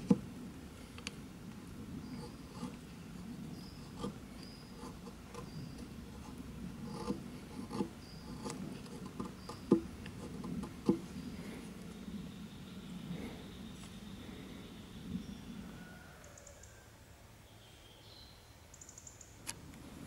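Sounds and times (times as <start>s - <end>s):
hatchet scraping wooden stick: 2.1s - 2.8s, 3.8s - 11.1s.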